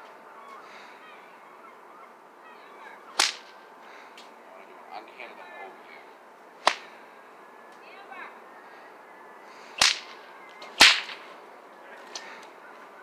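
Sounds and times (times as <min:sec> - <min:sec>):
bullwhip cracking: 0:03.1 - 0:03.6, 0:06.6 - 0:06.9, 0:09.8 - 0:11.3.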